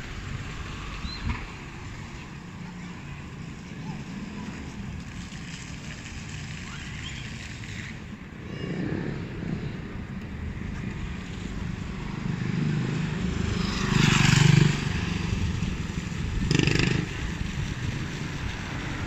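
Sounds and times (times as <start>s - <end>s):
low rumble of road traffic: 0.0s - 19.0s
vehicle passing: 10.9s - 19.0s.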